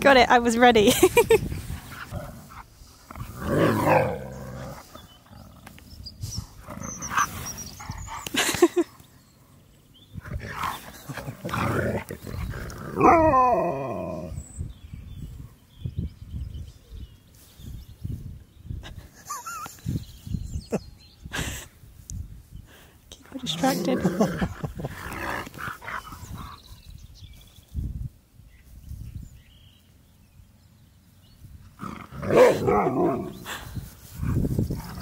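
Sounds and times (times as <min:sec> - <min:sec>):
huskies calling and grumbling: 0:01.7 - 0:09.2, 0:10.1 - 0:14.5, 0:31.6 - 0:33.7.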